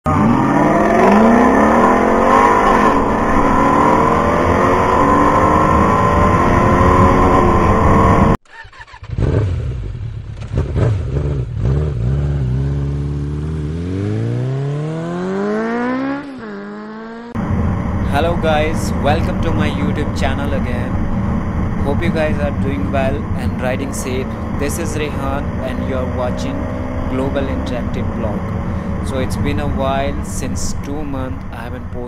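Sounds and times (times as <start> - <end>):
engine revving up: 0.1 - 31.8
vehicle engines revving in traffic: 0.1 - 32.0.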